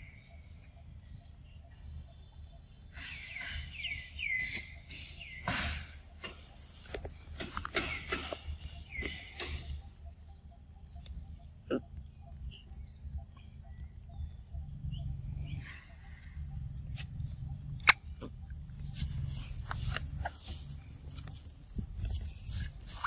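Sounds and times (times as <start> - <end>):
bird chirps: 0.0 - 23.0
insect drone: 0.0 - 23.0.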